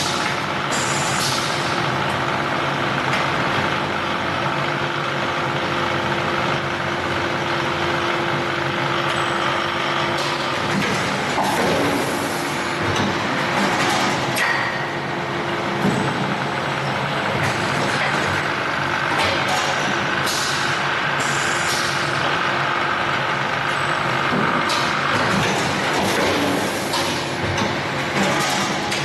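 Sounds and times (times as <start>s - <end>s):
machine mechanical hum: 0.0s - 29.0s
pneumatic air hisses: 0.7s - 1.5s, 21.2s - 21.9s.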